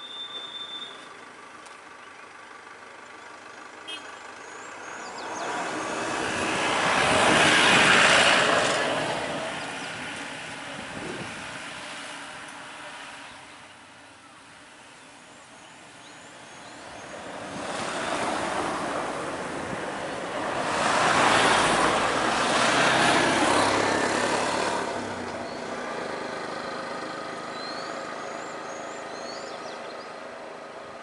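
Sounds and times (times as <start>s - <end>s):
faint bird chirps: 0.0s - 1.2s
vehicles passing close by: 0.0s - 31.0s.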